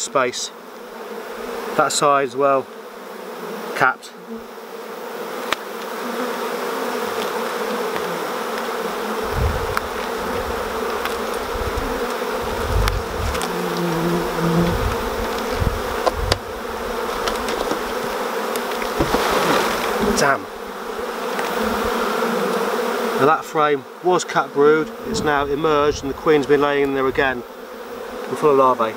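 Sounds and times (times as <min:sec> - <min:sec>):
bee buzzing close by: 0:00.0 - 0:28.9
bees buzzing: 0:00.0 - 0:28.9
sharp knocks: 0:18.8 - 0:19.6.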